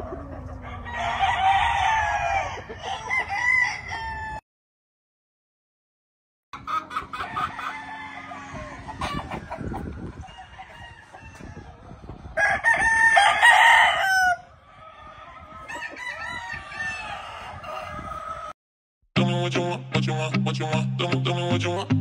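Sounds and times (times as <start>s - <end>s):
roosters crowing: 0.0s - 4.4s, 6.6s - 18.6s.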